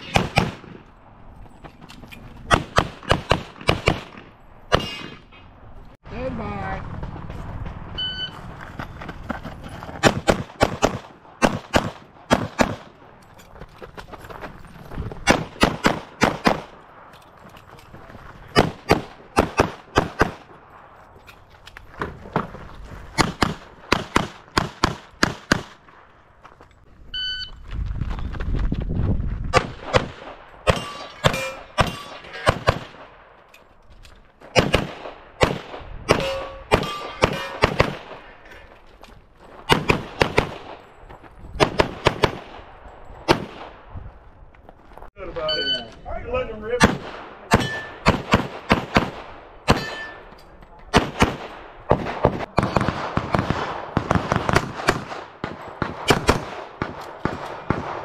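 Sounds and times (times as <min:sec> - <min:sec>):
pistol shots: 0:00.0 - 0:00.8, 0:02.5 - 0:05.3, 0:10.0 - 0:13.0, 0:15.2 - 0:16.8, 0:18.5 - 0:20.6, 0:23.2 - 0:25.9, 0:29.5 - 0:33.3, 0:34.4 - 0:38.4, 0:39.6 - 0:40.8, 0:41.6 - 0:43.8, 0:46.8 - 0:50.2, 0:50.9 - 0:58.0
shot timer beep: 0:45.5 - 0:45.9.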